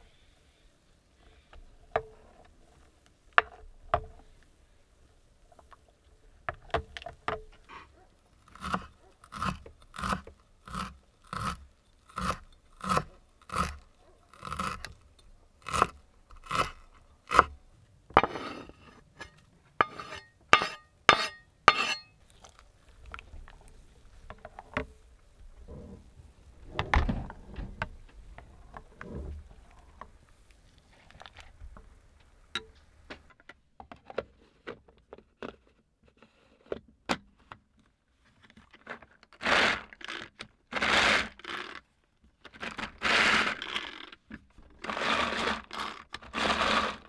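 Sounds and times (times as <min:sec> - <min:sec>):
knife scraping board: 0:08.5 - 0:15.0, 0:15.6 - 0:17.5, 0:18.2 - 0:22.1
knife chopping on wooden board: 0:19.8 - 0:22.0.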